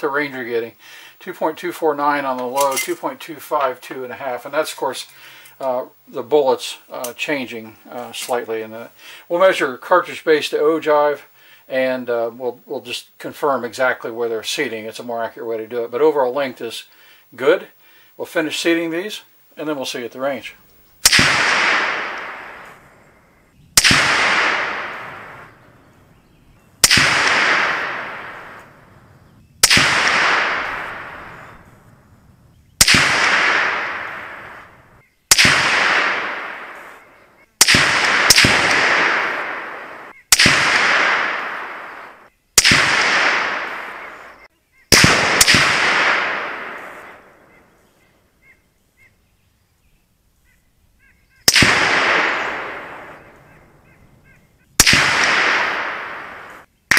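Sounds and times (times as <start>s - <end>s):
rifle shots echoing: 20.2s - 47.9s, 51.4s - 56.9s.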